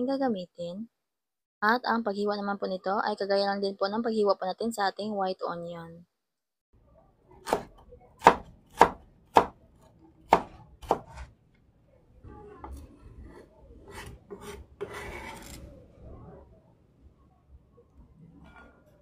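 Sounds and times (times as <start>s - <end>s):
knife chopping on cutting board: 7.4s - 9.6s, 10.3s - 11.3s
knife scraping board: 10.4s - 11.3s, 13.3s - 15.7s.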